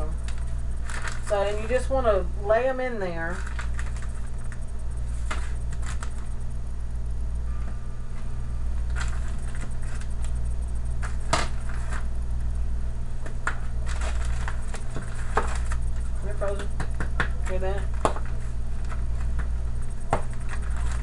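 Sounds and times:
steady low hum: 0.0 - 21.0
plastic bag crinkling: 0.2 - 1.8, 3.2 - 6.3, 13.7 - 16.3.

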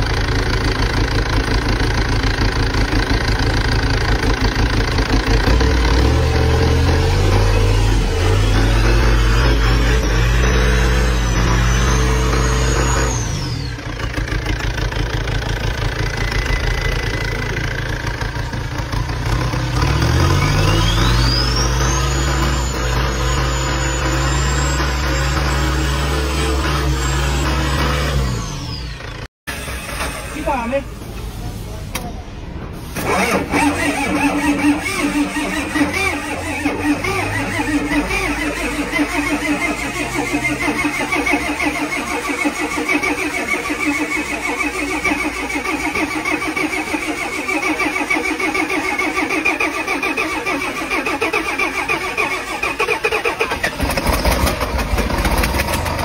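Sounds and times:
turbo whine: 0.0 - 30.8
diesel engine revving and idling: 0.0 - 56.0.

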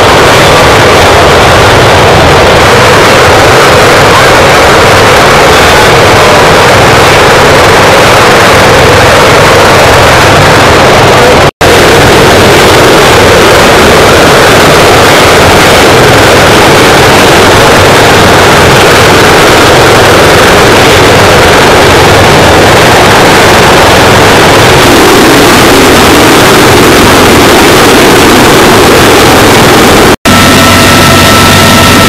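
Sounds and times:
helicopter turbine and rotor noise: 0.0 - 32.0.

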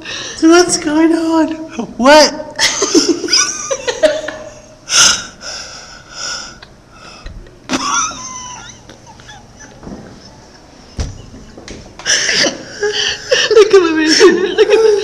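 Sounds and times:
women laughing: 2.6 - 4.8, 7.3 - 15.0
women squealing: 7.9 - 10.3.

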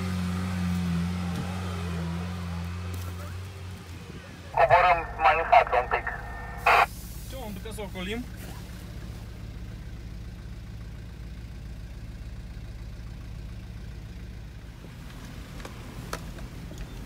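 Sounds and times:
car engine idling: 4.6 - 16.2.

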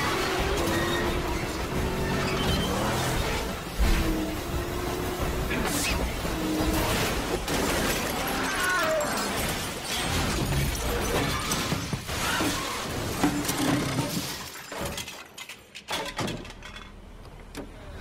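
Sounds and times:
vehicles crashing: 0.0 - 15.1
glass shattering: 6.8 - 16.8.

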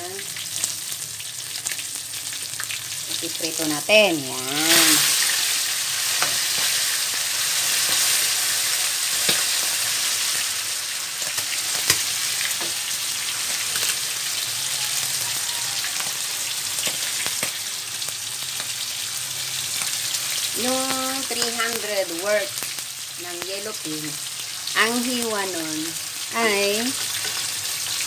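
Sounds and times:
fish frying in hot oil: 0.0 - 28.0.

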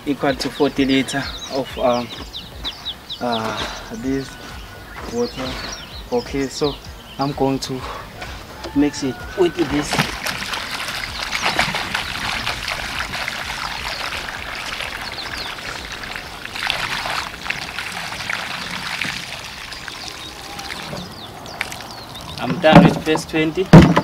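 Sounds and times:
water pouring and splashing: 8.3 - 24.0.

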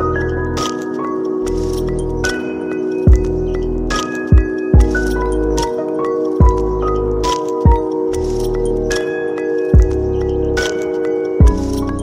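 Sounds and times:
bell-like melody: 0.0 - 12.0.

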